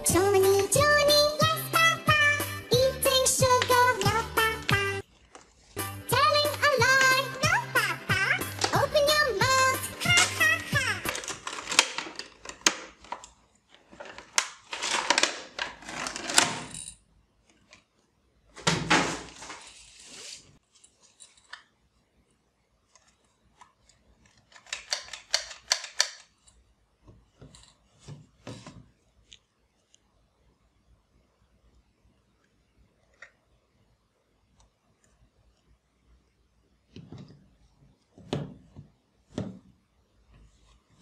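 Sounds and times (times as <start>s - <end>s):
hard plastic parts clicking: 8.4s - 9.2s, 10.0s - 17.8s, 23.0s - 26.6s
plastic packaging crinkling: 10.1s - 16.4s.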